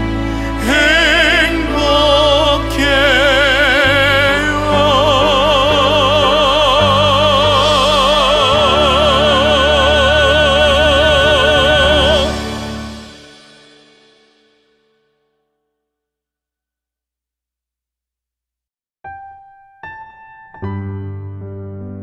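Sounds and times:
sustained accompaniment: 0.0 - 14.6
woman singing with vibrato: 1.7 - 12.9.

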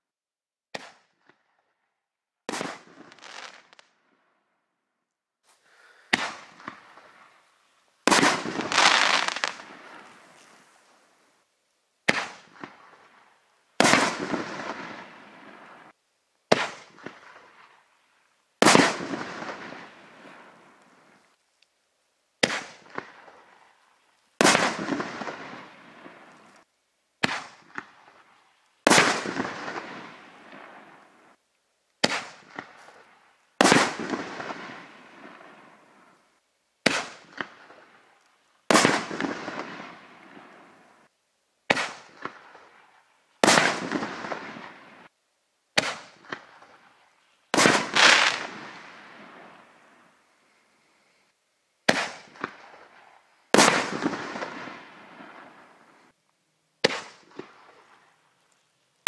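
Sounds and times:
firework shell bursting: 8.1 - 9.8.

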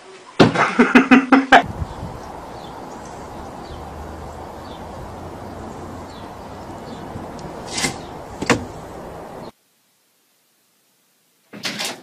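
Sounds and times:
distant traffic hum: 1.6 - 9.5.

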